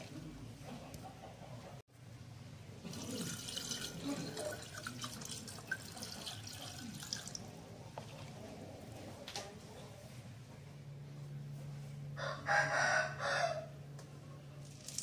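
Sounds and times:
water pouring into a bowl: 2.8s - 7.5s.

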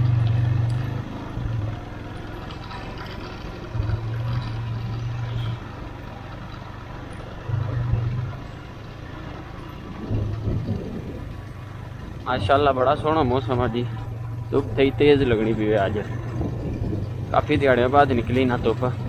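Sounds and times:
motorcycle engine running: 0.0s - 19.0s
wind noise on microphone: 9.8s - 12.3s, 14.6s - 19.0s.

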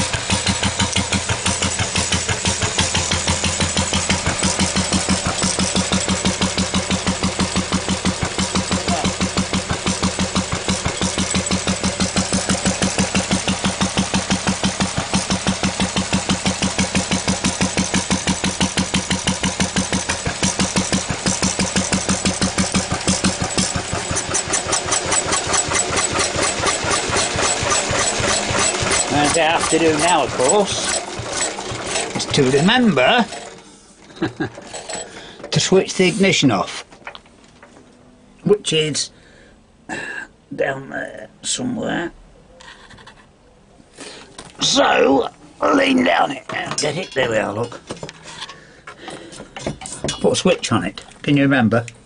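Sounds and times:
stationary engine running: 0.0s - 36.4s.

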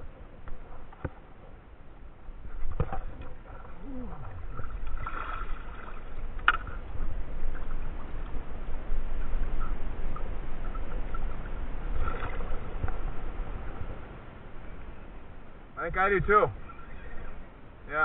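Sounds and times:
low rumble: 0.0s - 17.8s
water sloshing against hull: 0.0s - 17.8s
fishing rod knocks: 6.4s - 6.8s.

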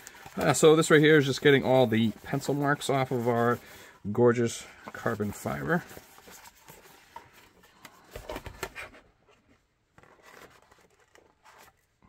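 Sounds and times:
cloth wiping plastic: 0.0s - 7.5s.

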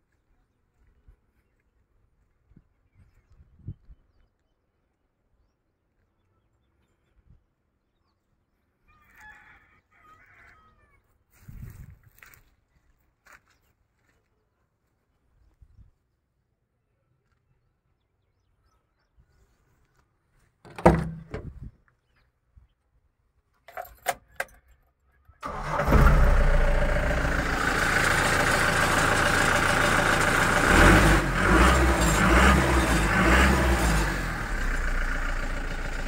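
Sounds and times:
diesel engine starting and running: 20.7s - 21.5s, 25.4s - 36.0s
loud clunk: 20.7s - 21.6s.

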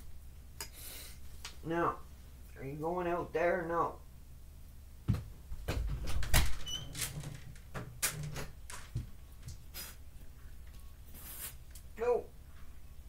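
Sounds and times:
door clicks and knocks: 5.1s - 9.1s
door squeak: 6.1s - 7.4s.

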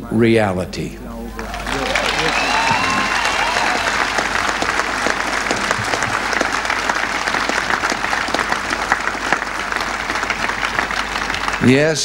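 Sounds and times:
crowd applauding: 1.2s - 12.0s.

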